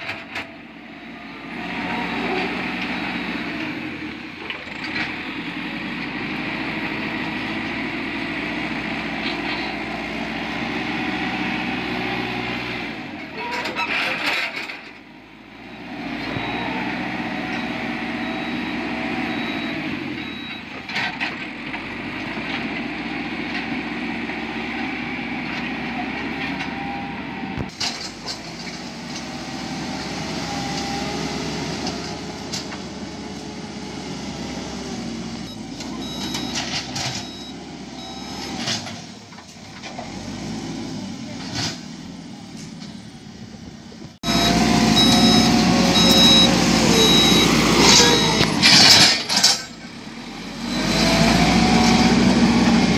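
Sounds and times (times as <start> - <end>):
diesel engine running: 0.0 - 52.9
high broken beeping: 44.2 - 49.3.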